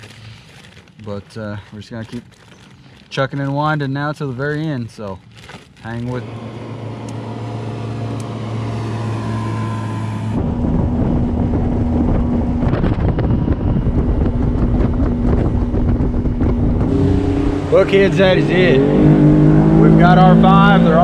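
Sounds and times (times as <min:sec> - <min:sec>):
outboard motor running: 0:05.4 - 0:21.0
wind rushing over microphone: 0:09.5 - 0:20.8.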